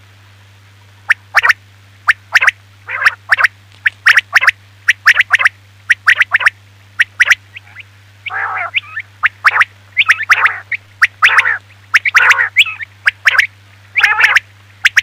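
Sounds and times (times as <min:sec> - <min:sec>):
steady low hum: 0:00.0 - 0:15.0
quail calling: 0:01.1 - 0:15.0.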